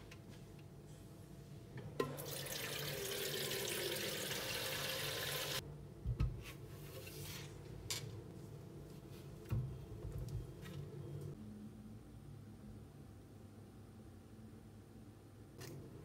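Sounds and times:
water rushing from tap: 2.2s - 5.6s.

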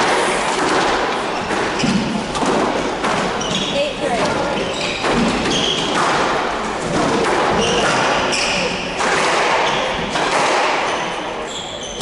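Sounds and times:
squash ball struck by rackets: 0.0s - 3.7s, 4.6s - 11.3s
shoes squeaking on wooden floor: 3.3s - 6.0s, 10.8s - 12.0s.

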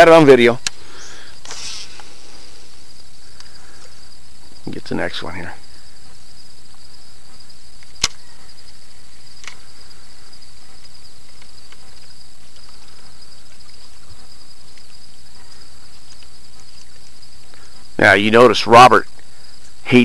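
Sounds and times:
shrill insect chorus: 0.0s - 20.0s.

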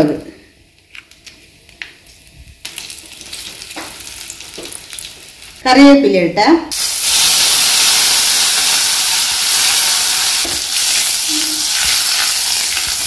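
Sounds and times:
oil sizzling in a pan: 2.6s - 5.6s, 6.7s - 13.0s.

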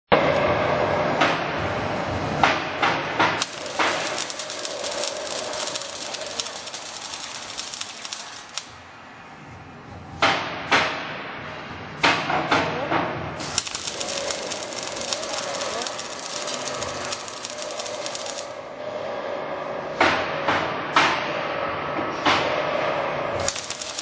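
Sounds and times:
welding arc crackling: 3.4s - 8.8s, 13.4s - 18.6s, 23.4s - 24.0s.

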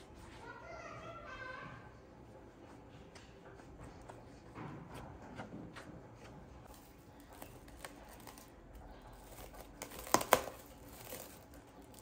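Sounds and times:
hand working sticky dough: 0.0s - 12.0s
cling film crinkling: 6.7s - 12.0s.

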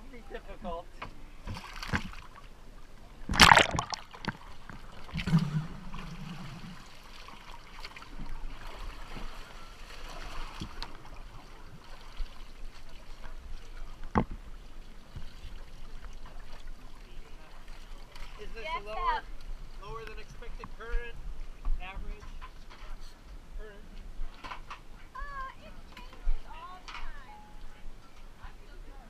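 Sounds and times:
water splashing and sloshing: 0.7s - 20.9s
loud splash: 3.3s - 4.3s.

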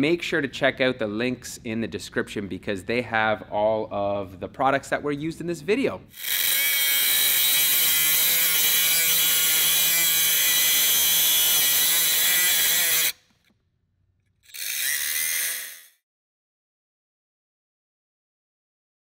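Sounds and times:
die grinder grinding metal: 6.1s - 13.3s, 14.4s - 16.0s.

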